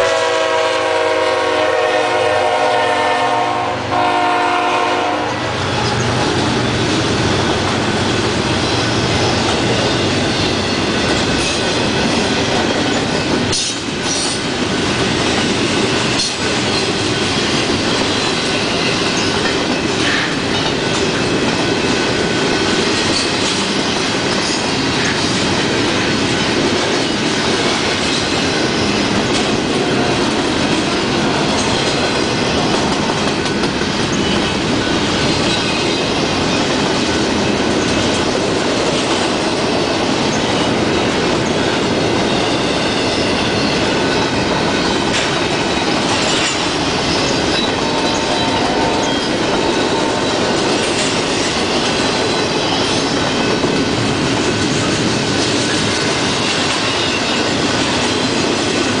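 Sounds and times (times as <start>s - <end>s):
steel wheels rumbling on rail: 0.0s - 59.0s
high wheel squeal: 46.2s - 50.6s.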